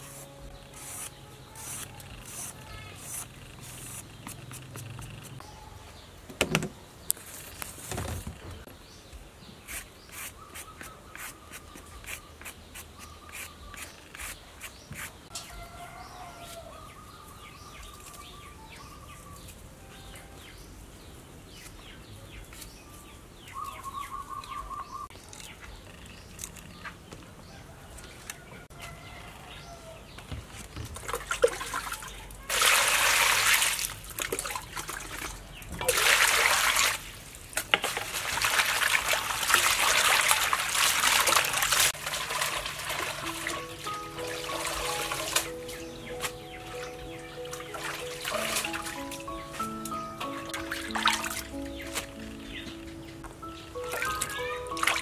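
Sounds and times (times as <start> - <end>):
knife scraping a vegetable: 0.0 - 5.4, 9.7 - 15.2
birds chirping: 0.0 - 31.0, 43.0 - 55.0
water pouring into a metal bowl: 37.9 - 43.6.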